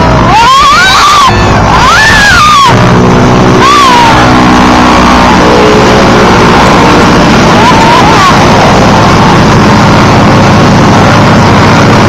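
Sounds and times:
radial aircraft engine running: 0.0s - 12.0s.

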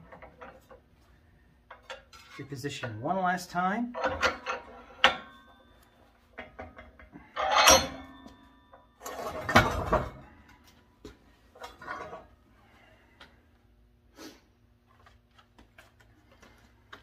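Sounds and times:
metal tool clanks and clicks: 3.9s - 10.0s.

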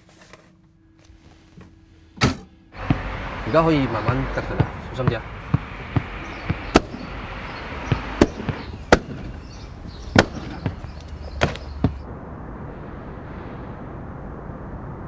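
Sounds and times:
low background rumble: 0.8s - 15.0s
sharp pops or bangs: 4.0s - 12.1s.

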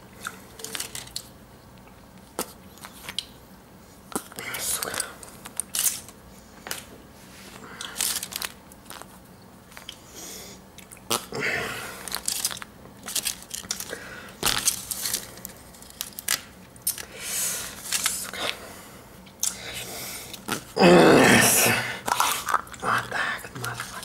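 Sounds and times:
foil wrapper crinkling: 7.8s - 9.2s, 12.0s - 17.1s.

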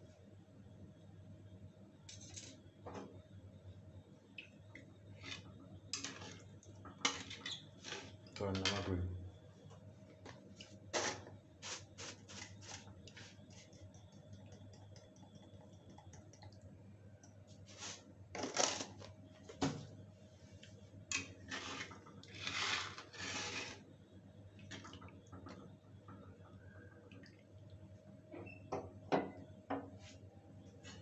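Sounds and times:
curry bubbling and popping: 12.4s - 17.5s, 24.4s - 29.0s.

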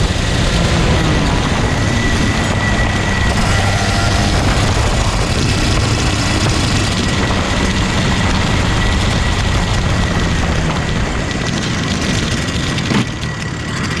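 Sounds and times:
kart engine running: 0.0s - 14.0s
rushing wind noise: 0.0s - 14.0s
thin whine: 0.0s - 14.0s.

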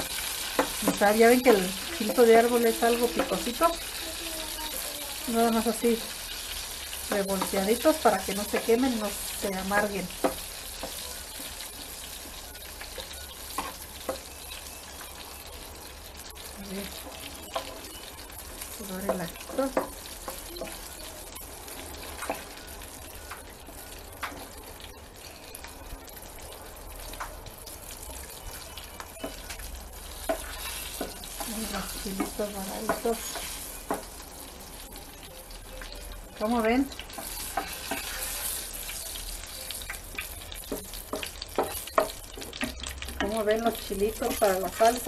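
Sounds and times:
oil sizzling: 0.0s - 45.0s
metal spoon stirring in a pan: 5.4s - 14.5s, 27.9s - 34.1s, 36.9s - 45.0s.

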